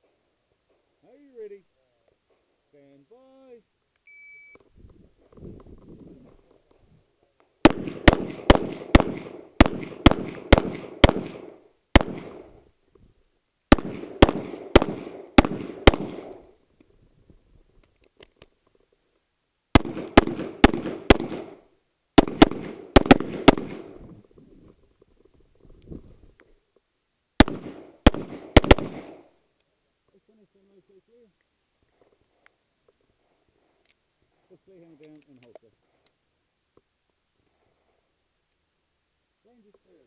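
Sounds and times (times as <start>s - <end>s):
handgun shots echoing: 7.7s - 12.5s, 13.7s - 16.4s, 19.8s - 21.6s, 22.2s - 23.9s, 27.4s - 29.2s.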